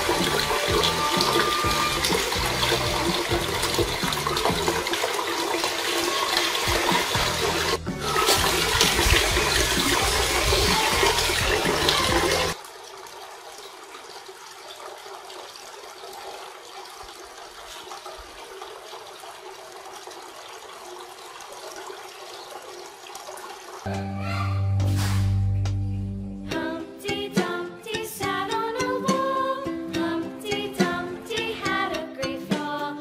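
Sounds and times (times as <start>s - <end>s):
fountain water splashing: 0.0s - 23.9s.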